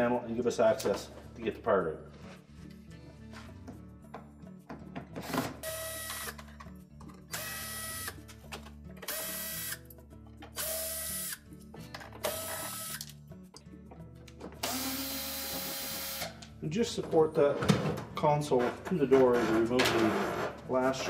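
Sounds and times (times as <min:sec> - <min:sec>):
cordless drill whining: 0:05.6 - 0:06.4, 0:12.2 - 0:13.0, 0:14.6 - 0:16.3.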